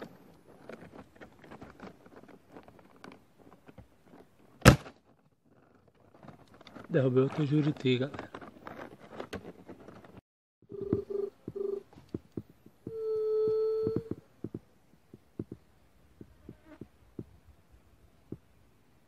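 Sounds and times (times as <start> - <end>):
low dove-like hooting: 12.8 - 14.2.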